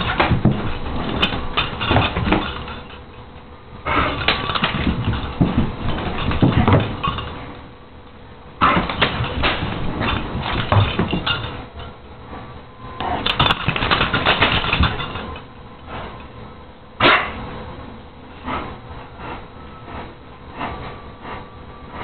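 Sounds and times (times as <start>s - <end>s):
dog scuffling and knocking: 0.0s - 3.0s, 3.9s - 7.4s, 8.6s - 11.6s, 13.2s - 15.4s
dog panting: 18.4s - 22.0s.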